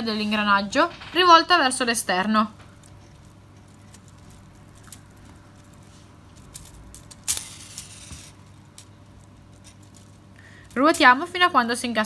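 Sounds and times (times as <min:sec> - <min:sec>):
plastic rattle: 0:02.5 - 0:11.1.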